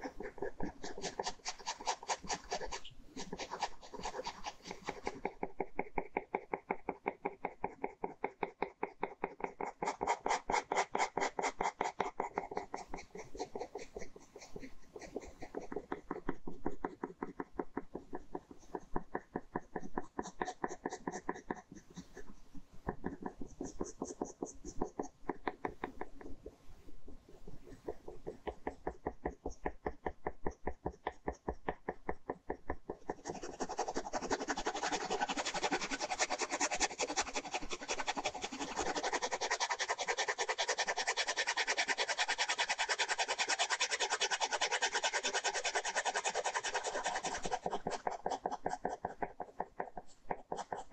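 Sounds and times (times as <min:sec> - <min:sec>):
ballpoint pen scratching paper: 0:00.0 - 0:50.9.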